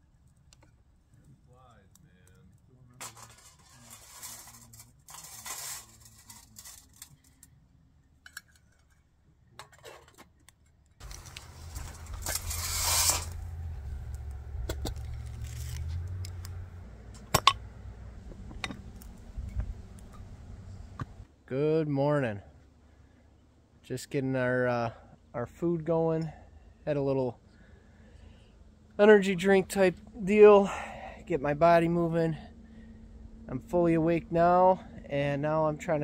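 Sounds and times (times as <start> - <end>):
steady low hum: 11.0 - 21.5, 22.2 - 36.0
gear rustling and clinking: 14.8 - 16.5.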